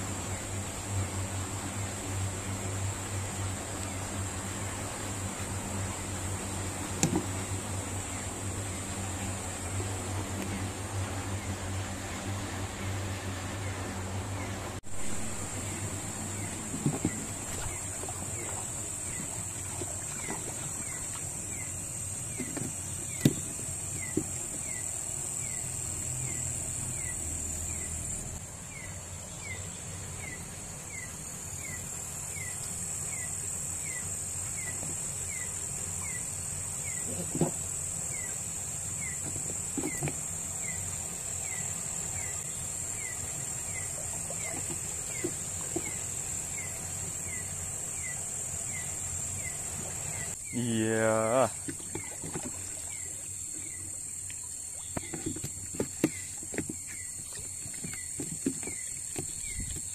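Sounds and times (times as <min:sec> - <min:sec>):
wading in shallow water: 0:00.0 - 0:28.8, 0:33.8 - 0:59.9
insects buzzing: 0:00.0 - 0:59.9
falling insect chirp: 0:14.9 - 0:59.9.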